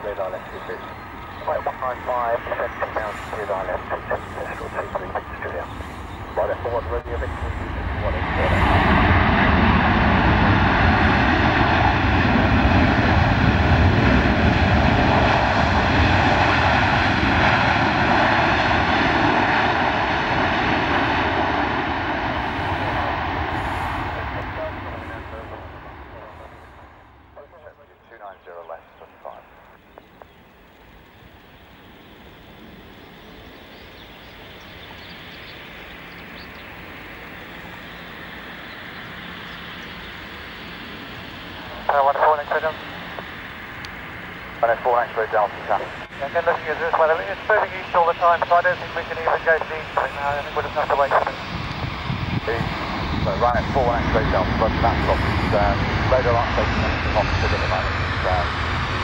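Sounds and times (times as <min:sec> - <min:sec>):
jet engines whining: 0:00.0 - 0:59.0
rush of air: 0:22.2 - 0:25.3.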